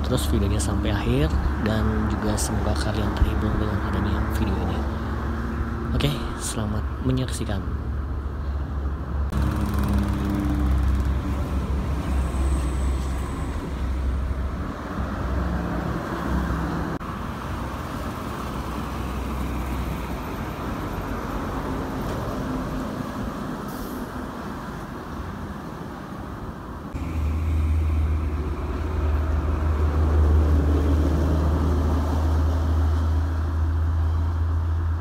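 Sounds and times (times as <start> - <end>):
tyre and traffic noise: 0.0 - 35.0
coach passing deep engine: 26.9 - 35.0.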